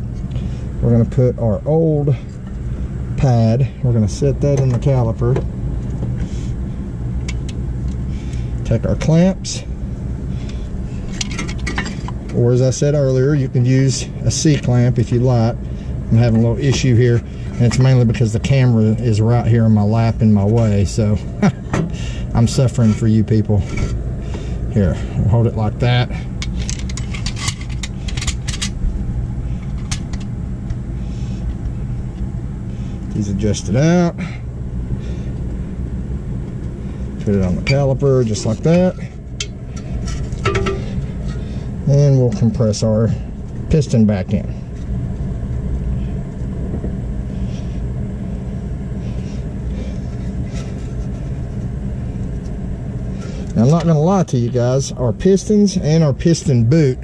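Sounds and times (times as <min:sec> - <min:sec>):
steady low rumble: 0:00.0 - 0:57.0.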